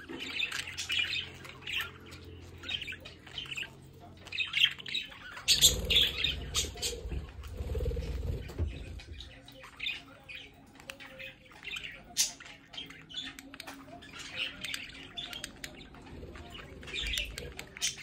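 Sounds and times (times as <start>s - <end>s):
budgerigars chirping and squawking: 0.0s - 18.0s.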